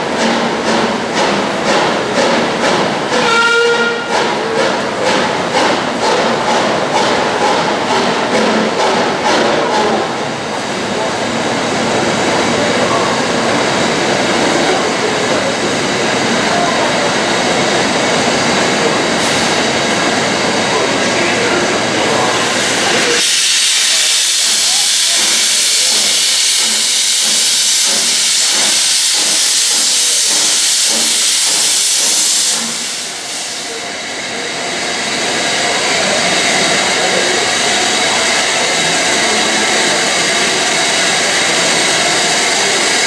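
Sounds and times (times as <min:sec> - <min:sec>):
steam engine rumble: 0:00.0 - 0:43.0
loud hiss of steam: 0:16.0 - 0:43.0.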